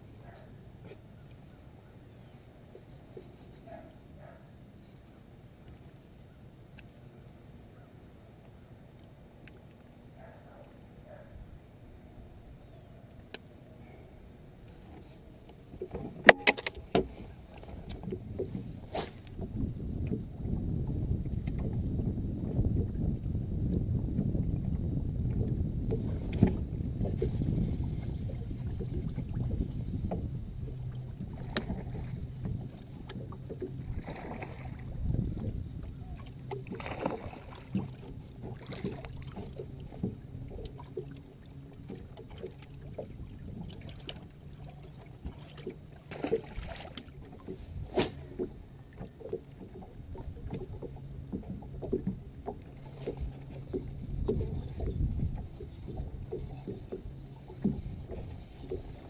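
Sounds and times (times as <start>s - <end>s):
water lapping against boat hull: 0.0s - 59.0s
wind: 0.0s - 59.0s.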